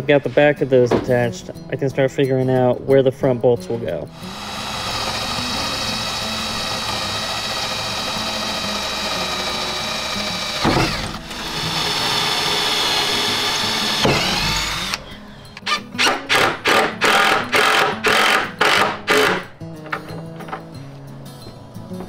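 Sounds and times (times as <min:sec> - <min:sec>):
cordless drill boring into wood: 0:04.2 - 0:15.0, 0:15.6 - 0:19.4.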